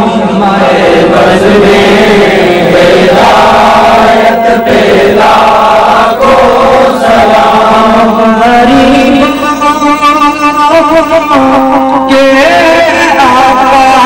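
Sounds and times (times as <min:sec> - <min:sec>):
men chanting together: 0:00.2 - 0:09.3.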